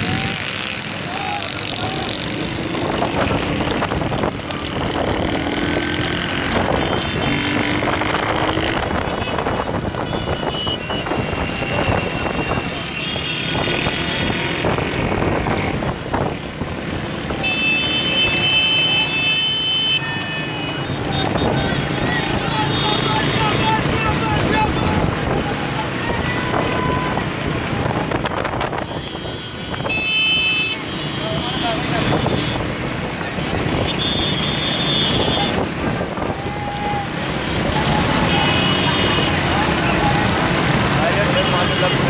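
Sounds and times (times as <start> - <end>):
motorcycles and vehicles running: 0.0 - 42.0
vehicle horns sounding: 6.1 - 7.7, 8.6 - 15.8, 17.3 - 25.1, 28.6 - 35.8, 37.1 - 40.5.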